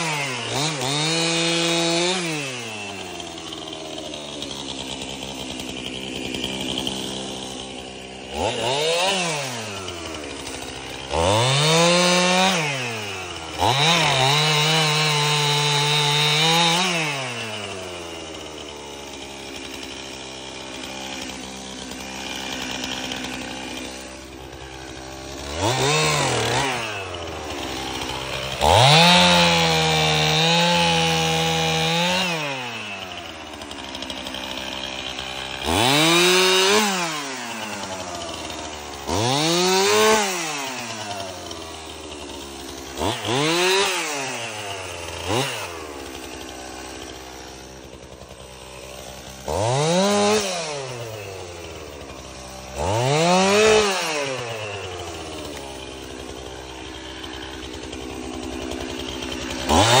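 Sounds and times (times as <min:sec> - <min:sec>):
chainsaw revving and idling: 0:00.0 - 1:00.0.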